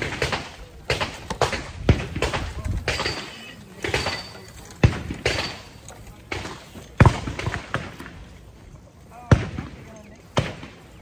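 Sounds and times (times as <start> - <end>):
gunshots: 0.0 - 8.2, 9.2 - 11.0.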